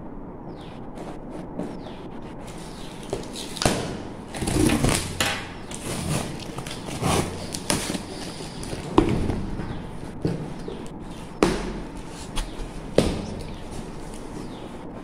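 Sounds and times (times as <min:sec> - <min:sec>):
packing tape ripping off: 0:02.5 - 0:09.0.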